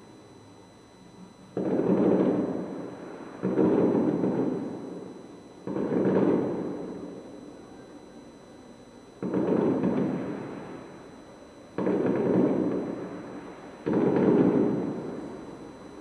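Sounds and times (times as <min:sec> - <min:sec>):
distant firework booms: 0:13.8 - 0:15.2.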